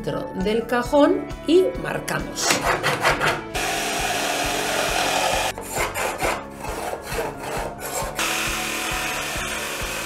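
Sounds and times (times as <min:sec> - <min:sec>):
jigsaw sawing wood: 0:02.4 - 0:10.0.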